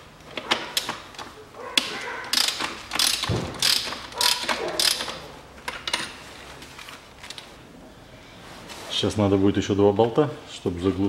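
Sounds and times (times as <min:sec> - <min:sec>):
ratchet wrench clicking: 0:02.3 - 0:05.2.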